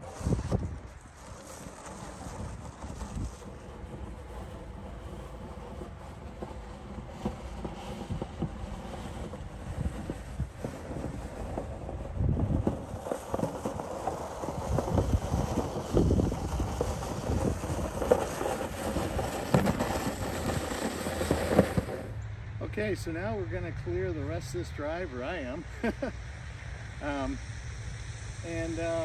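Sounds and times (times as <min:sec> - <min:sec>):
hand truck rolling: 0:00.0 - 0:22.2
snow pusher scraping snow: 0:00.0 - 0:22.2, 0:28.5 - 0:29.0.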